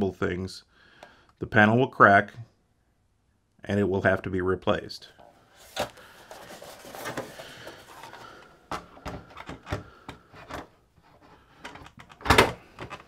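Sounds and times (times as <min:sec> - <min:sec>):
plastic rubbing scrape: 0:05.6 - 0:08.4, 0:09.0 - 0:13.0.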